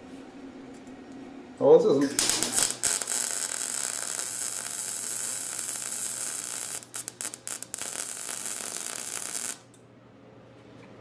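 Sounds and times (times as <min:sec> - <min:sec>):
welder arc crackling: 0:02.0 - 0:09.8.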